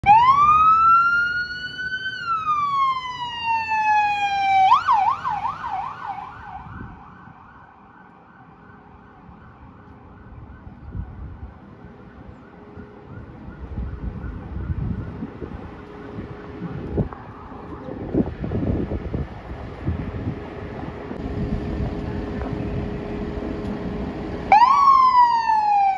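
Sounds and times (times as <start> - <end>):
emergency siren wailing and yelping: 0.0 - 18.3, 24.5 - 25.9.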